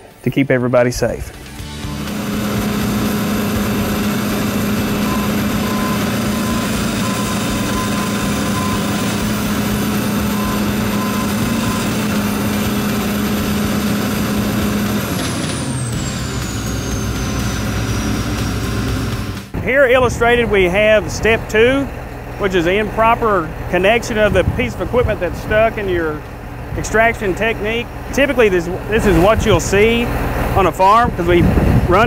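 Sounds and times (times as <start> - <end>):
high whine: 1.0 - 32.0
diesel engine running: 1.1 - 32.0.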